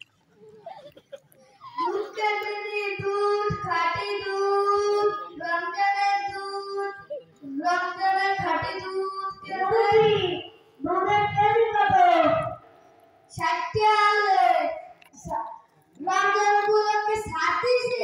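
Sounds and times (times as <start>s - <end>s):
boy singing into microphone: 1.8s - 12.4s.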